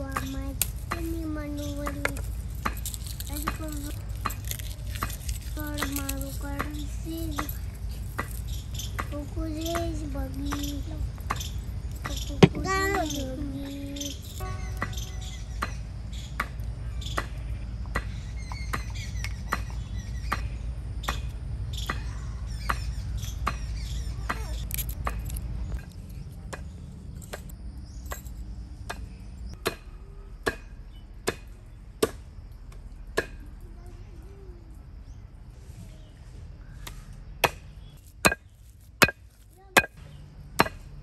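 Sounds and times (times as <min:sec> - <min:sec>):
wooden mallet pounding meat: 0:12.4 - 0:12.8.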